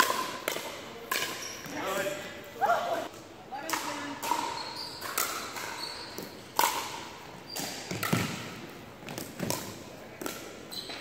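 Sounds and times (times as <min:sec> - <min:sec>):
paddles hitting plastic ball: 0:00.0 - 0:01.8, 0:03.6 - 0:10.5.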